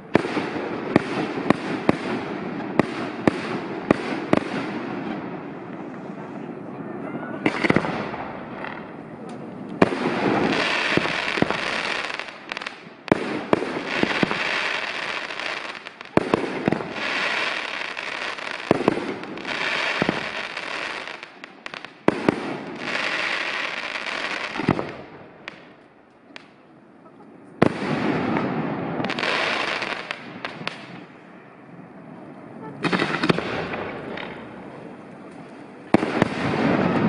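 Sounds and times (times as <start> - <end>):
dense firework crackling: 0.0 - 26.6, 27.5 - 37.0
firework shells bursting with bangs: 7.4 - 25.8.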